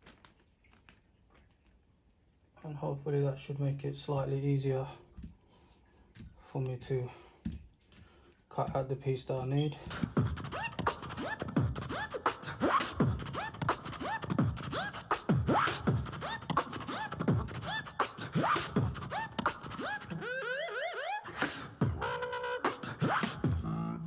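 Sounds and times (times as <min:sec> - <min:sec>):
beatbox kick-drum sounds: 0:09.8 - 0:20.5, 0:21.3 - 0:24.0.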